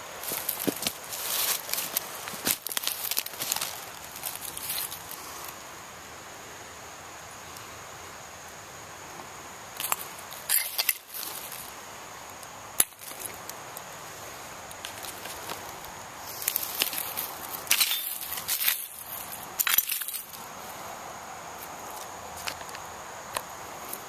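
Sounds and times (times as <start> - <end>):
footsteps in dry leaves: 0.2 - 5.1.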